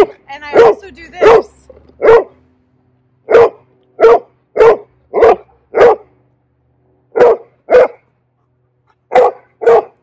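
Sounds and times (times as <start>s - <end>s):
dog barking: 0.0s - 2.4s, 3.3s - 6.1s, 7.1s - 8.1s, 9.1s - 10.0s.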